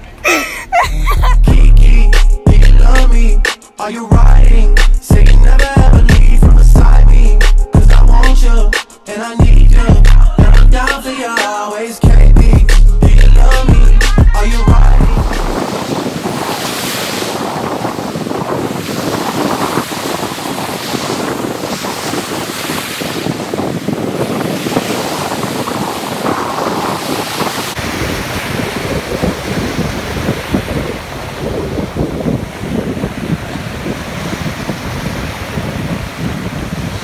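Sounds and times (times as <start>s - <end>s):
wind buffeting microphone: 13.8s - 37.0s
ocean surf breaking: 14.0s - 37.0s.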